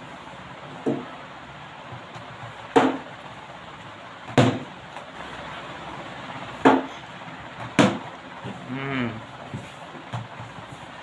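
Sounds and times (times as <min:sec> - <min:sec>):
plastic bat hitting ball: 0:02.7 - 0:03.1, 0:04.3 - 0:04.7, 0:06.6 - 0:06.9, 0:07.6 - 0:08.1.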